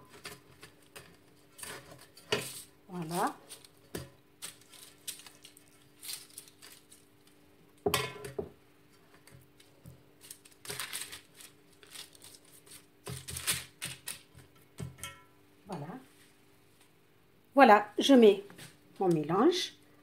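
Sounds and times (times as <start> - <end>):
parchment paper rustling: 0.0 - 7.5, 9.0 - 14.4.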